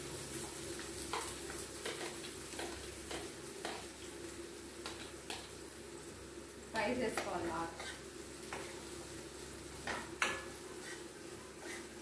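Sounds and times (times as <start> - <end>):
faint sizzle: 0.0 - 12.0
metal spoon scraping a pan: 7.1 - 8.8, 9.8 - 12.0.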